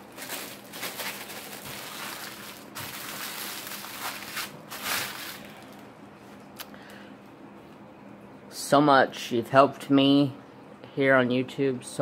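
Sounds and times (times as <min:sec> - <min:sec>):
plastic packaging crinkling: 0:00.0 - 0:05.8.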